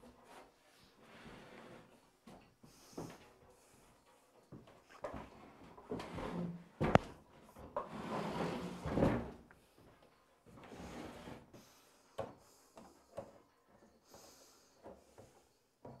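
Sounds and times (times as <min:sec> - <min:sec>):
workbench scraping on concrete: 0:01.0 - 0:02.0, 0:05.2 - 0:07.0, 0:07.6 - 0:09.4, 0:10.6 - 0:11.7.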